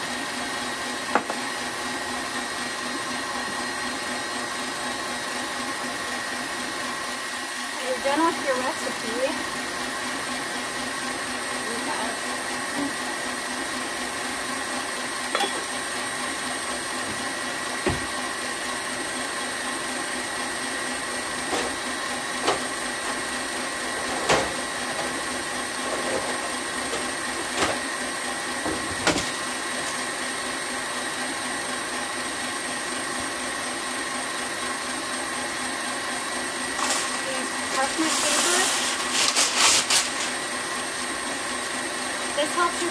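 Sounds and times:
stand mixer motor humming: 0:00.0 - 0:39.0, 0:40.1 - 0:42.9
knocks on counter: 0:01.1 - 0:01.4.

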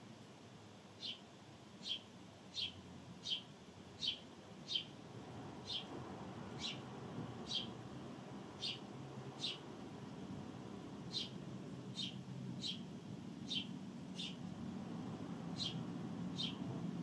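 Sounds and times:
sparrow chirping: 0:01.0 - 0:01.2, 0:01.8 - 0:05.0, 0:05.6 - 0:07.8, 0:08.5 - 0:09.7, 0:11.0 - 0:14.5, 0:15.4 - 0:16.9.

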